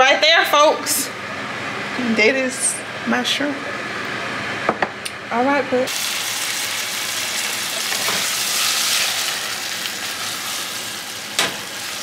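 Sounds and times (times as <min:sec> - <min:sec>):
shrimp sizzling in butter: 0:05.9 - 0:12.0.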